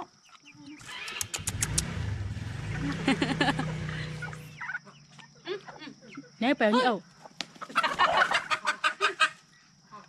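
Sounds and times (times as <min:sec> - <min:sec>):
sharp clicks: 0:00.8 - 0:02.0
motor engine starting up: 0:00.8 - 0:04.6.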